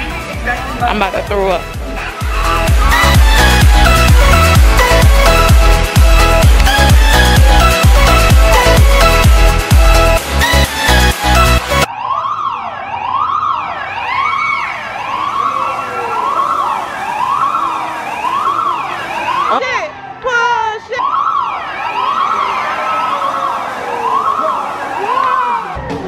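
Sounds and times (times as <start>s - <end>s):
siren wailing over loudspeakers: 10.4s - 25.9s.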